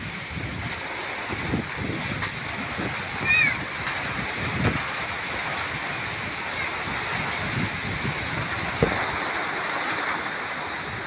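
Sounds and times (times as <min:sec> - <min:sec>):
heavy rain rushing: 0:00.0 - 0:11.0
low rumble of wind gusts: 0:00.0 - 0:11.0.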